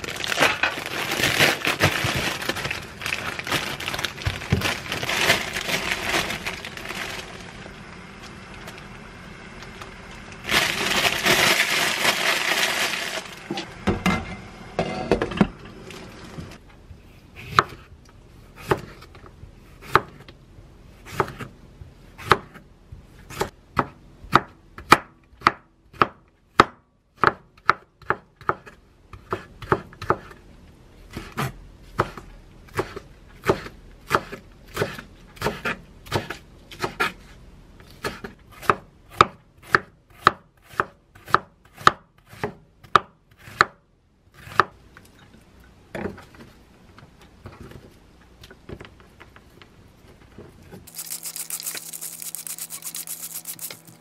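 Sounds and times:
knife chopping on wooden board: 17.4 - 17.9, 38.0 - 43.8.

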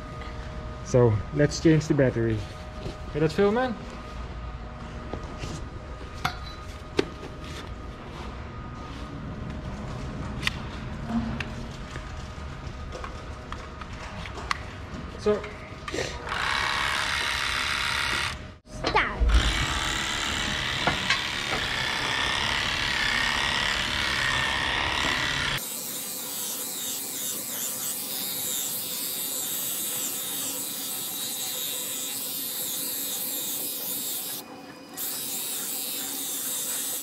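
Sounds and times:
cattle clipper buzzing: 16.2 - 18.5, 19.3 - 37.0.

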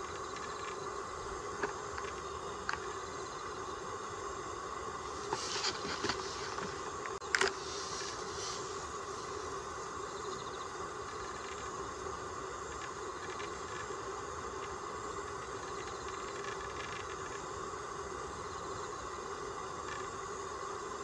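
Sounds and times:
insect chirring: 0.0 - 21.0
outdoor background hum: 0.0 - 21.0.

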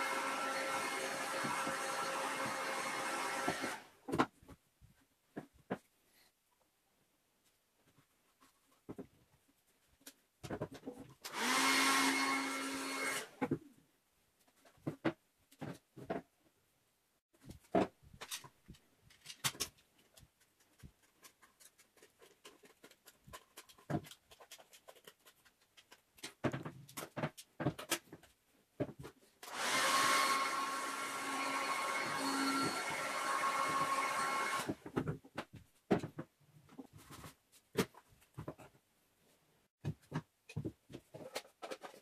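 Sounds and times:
vacuum cleaner running: 0.0 - 3.8, 11.3 - 13.2, 29.5 - 34.7
plastic parts knocking and clicking: 9.9 - 11.3, 17.4 - 29.3, 34.7 - 38.8, 39.8 - 42.0.

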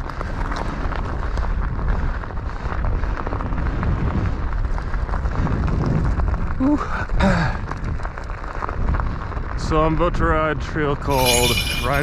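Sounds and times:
wind rumbling on microphone: 0.0 - 11.2.

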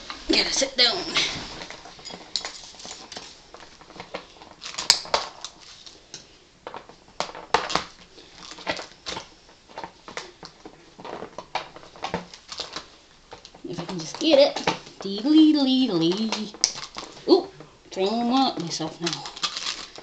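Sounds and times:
packing tape scraping cardboard: 18.0 - 20.0.

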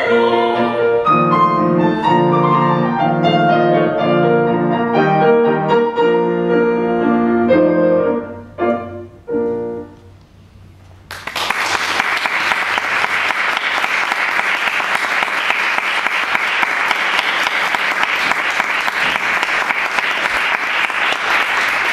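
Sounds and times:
audience applauding: 11.1 - 21.9.

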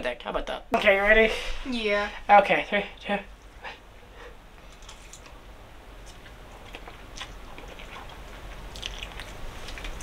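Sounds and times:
people chewing noodles: 6.0 - 10.0.

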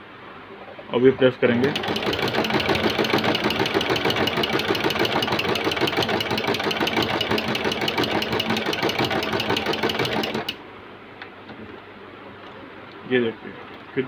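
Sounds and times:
sewing machine stitching: 1.6 - 10.6.

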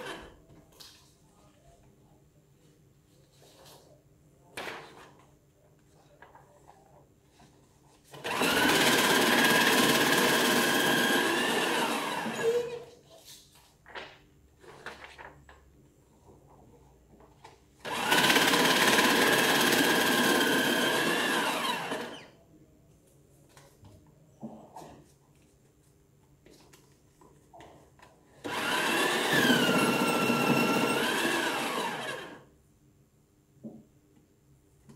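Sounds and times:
paper shredder whining: 8.1 - 12.7, 17.8 - 22.3, 28.4 - 32.5
paper rustling: 13.1 - 15.6.

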